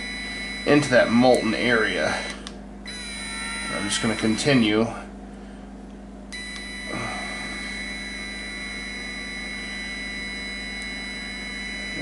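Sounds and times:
small motor whining: 0:00.0 - 0:04.6, 0:06.4 - 0:12.0
low hum: 0:00.0 - 0:12.0.

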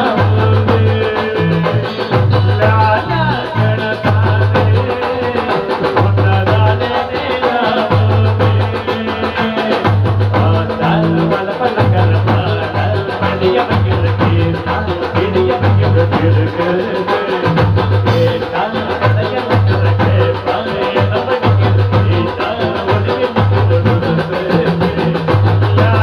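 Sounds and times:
bass line in held notes: 0:00.0 - 0:04.9
drums and percussion: 0:00.0 - 0:26.0
man singing into microphone: 0:00.0 - 0:26.0.

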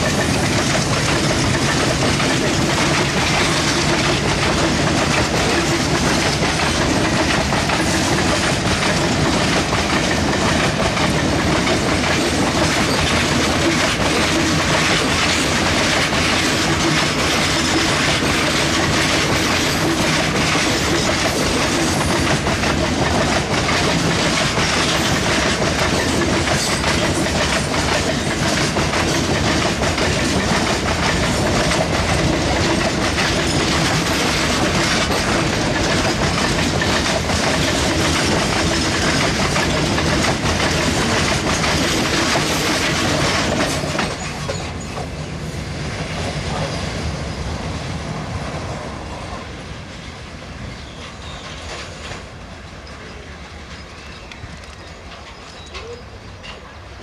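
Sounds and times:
wheels clicking over rail joints: 0:00.0 - 0:45.3
freight train wheels rolling: 0:00.0 - 0:57.0.

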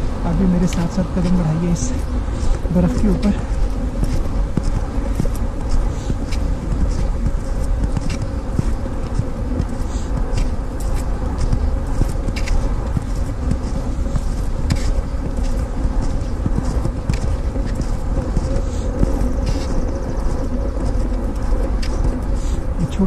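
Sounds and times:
footsteps crunching on snow: 0:00.0 - 0:23.0
wind rumble on microphone: 0:00.0 - 0:23.0.

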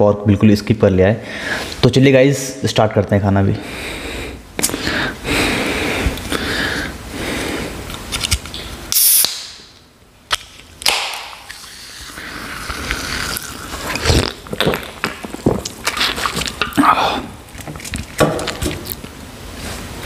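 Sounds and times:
sips and swallows: 0:11.4 - 0:18.2.

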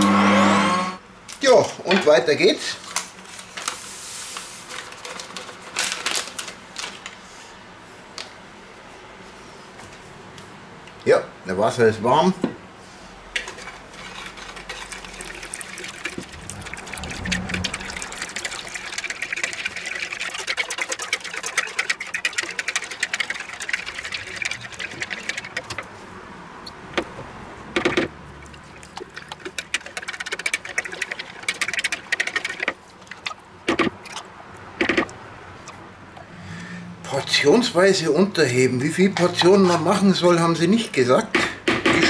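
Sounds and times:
whisk rattling against bowl: 0:13.4 - 0:26.0, 0:27.7 - 0:34.2, 0:38.8 - 0:40.9
water pouring into plastic bowl: 0:14.0 - 0:25.9, 0:27.8 - 0:35.2.

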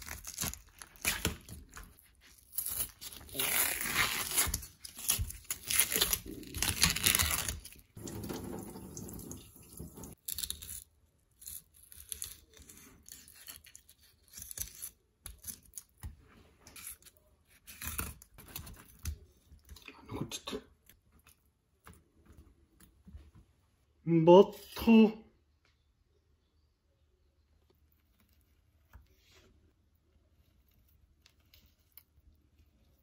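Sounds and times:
tearing and rubbing fish skin: 0:00.0 - 0:08.5, 0:10.0 - 0:19.6.

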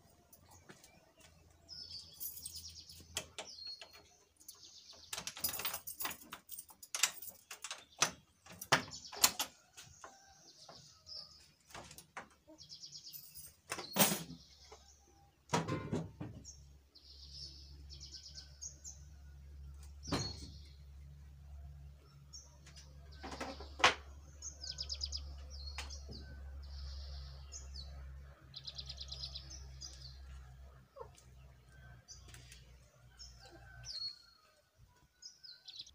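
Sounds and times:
small birds chirping: 0:00.0 - 0:15.5, 0:16.2 - 0:35.9
corrugated iron door opening: 0:02.7 - 0:10.0, 0:13.5 - 0:16.6, 0:19.9 - 0:20.8, 0:22.8 - 0:24.3.

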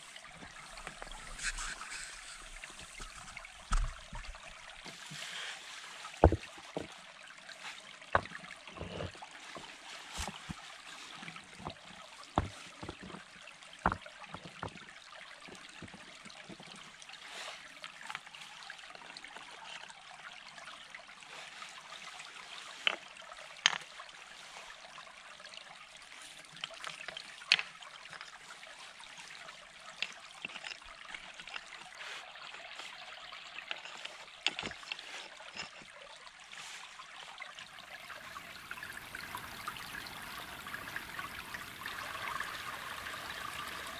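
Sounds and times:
stream running: 0:00.0 - 0:43.9
stones knocking together: 0:06.2 - 0:06.9, 0:12.4 - 0:13.2, 0:13.8 - 0:14.8.

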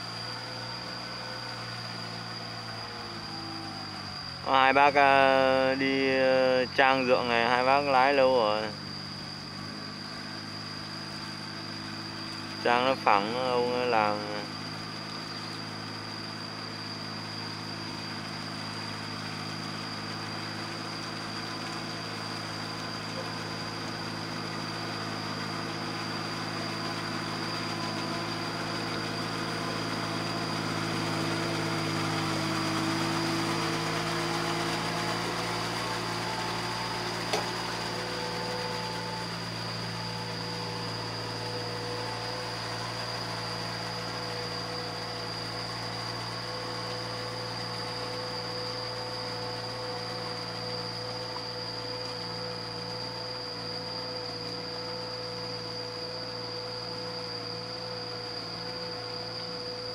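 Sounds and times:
tractor diesel engine running: 0:15.5 - 0:54.8.

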